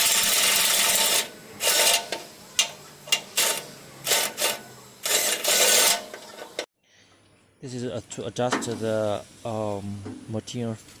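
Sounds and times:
wrench rasping on metal: 0:03.1 - 0:06.3.

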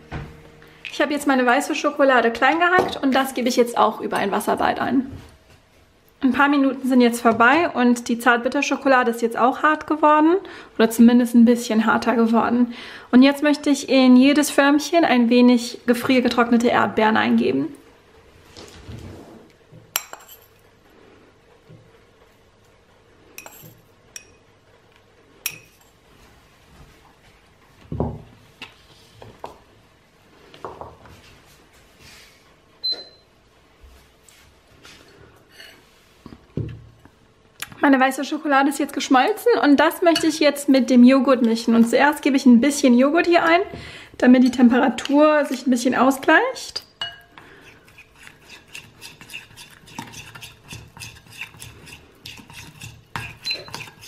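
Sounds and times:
metal spoon clinking ceramic bowl: 0:20.0 - 0:20.6, 0:23.4 - 0:24.4, 0:25.4 - 0:26.0, 0:47.0 - 0:47.3
spoon scraping ceramic bowl: 0:47.0 - 0:54.0.

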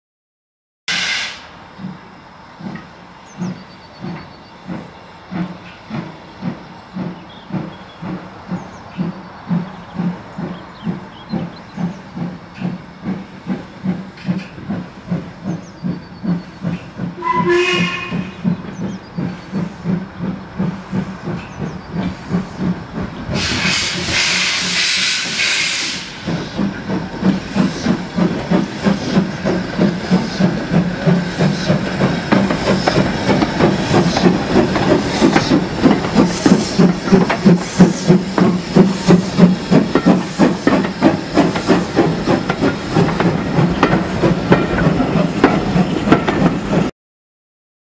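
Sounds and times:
steam whistle blast: 0:00.9 - 0:01.5, 0:17.2 - 0:18.4, 0:23.4 - 0:26.2
steam hissing: 0:00.9 - 0:46.9
steam locomotive exhaust beats: 0:00.9 - 0:46.9.

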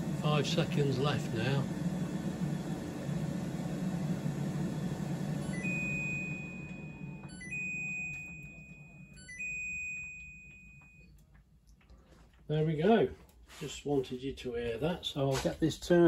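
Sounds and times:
air fryer fan running: 0:00.0 - 0:08.4.

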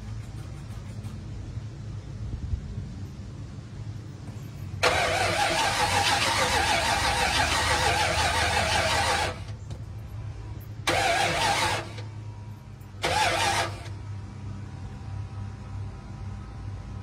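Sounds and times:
engine starter cranking: 0:04.8 - 0:09.6, 0:10.8 - 0:12.1, 0:12.9 - 0:14.0.

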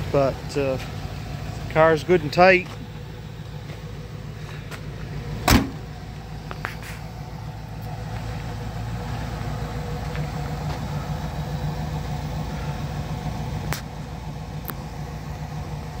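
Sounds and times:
car engine idling: 0:00.0 - 0:16.0
car door shutting: 0:05.4 - 0:05.9.

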